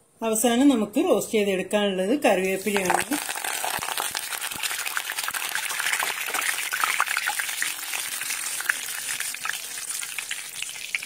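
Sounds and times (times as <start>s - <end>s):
leaves sizzling in hot oil: 2.5s - 11.0s.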